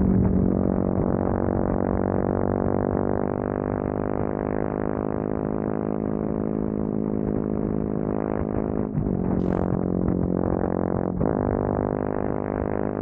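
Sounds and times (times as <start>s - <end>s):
motorcycle engine droning: 0.0s - 13.0s.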